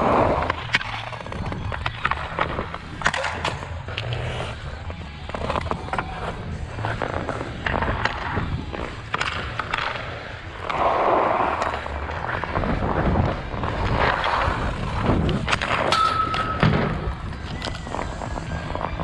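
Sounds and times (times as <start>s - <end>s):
hockey stick hitting puck: 0.0s - 4.2s, 5.2s - 19.0s
skate blades scraping ice: 0.0s - 19.0s.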